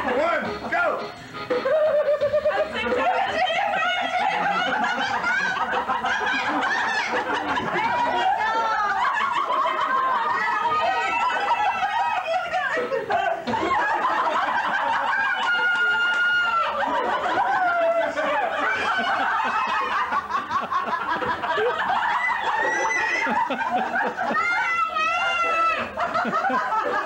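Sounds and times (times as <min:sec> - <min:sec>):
people laughing and chattering: 0:00.0 - 0:27.0.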